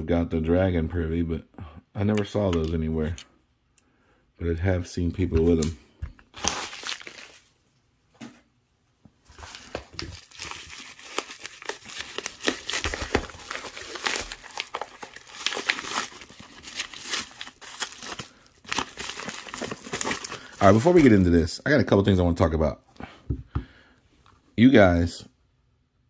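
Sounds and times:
padded mailer crinkling: 6.3s - 7.5s, 9.3s - 21.2s.

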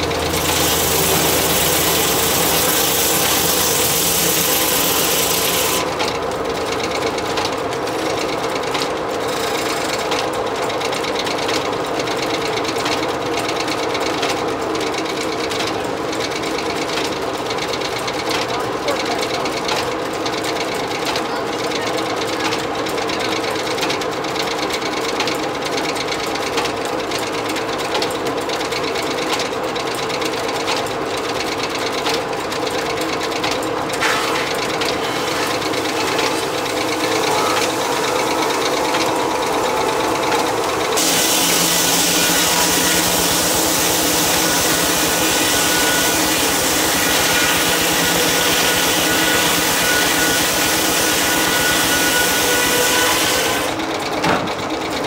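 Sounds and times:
circular saw blade cutting log: 0.0s - 8.2s, 8.8s - 10.2s, 33.4s - 53.8s
sawmill belts and pulleys clattering: 0.0s - 55.0s.

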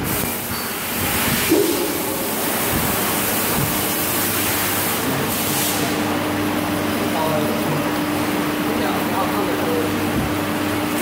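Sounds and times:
machine hissing: 0.0s - 8.3s
steady machine hum: 0.0s - 11.0s.

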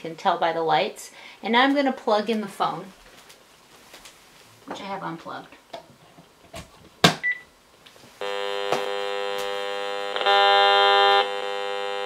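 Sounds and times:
rf meter buzzing: 8.2s - 12.0s.

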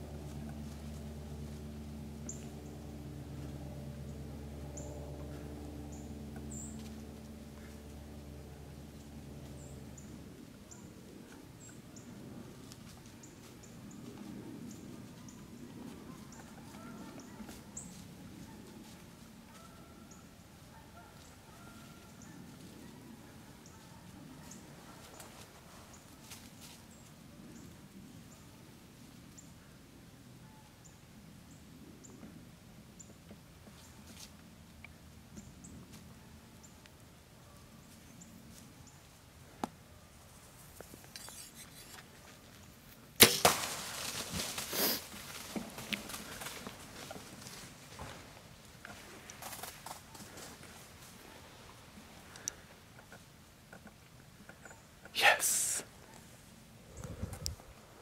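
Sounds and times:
bowstring crack and arrow hit: 43.2s - 45.0s
deer running through dry leaves: 43.2s - 51.4s.

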